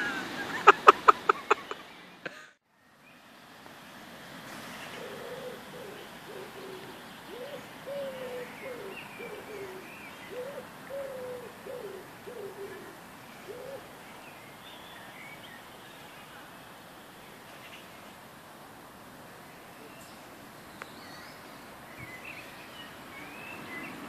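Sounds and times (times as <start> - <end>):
small birds chirping faintly: 0.5 - 24.0
pigeon cooing: 5.0 - 13.9.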